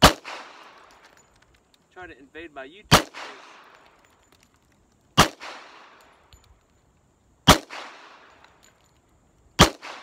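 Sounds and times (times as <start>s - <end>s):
gunshot echo: 0.0s - 0.8s, 2.9s - 3.8s, 5.2s - 6.0s, 7.5s - 8.3s, 9.6s - 10.0s
pistol shots: 0.0s - 0.9s, 2.9s - 3.9s, 5.2s - 6.0s, 7.4s - 8.4s, 9.6s - 10.0s.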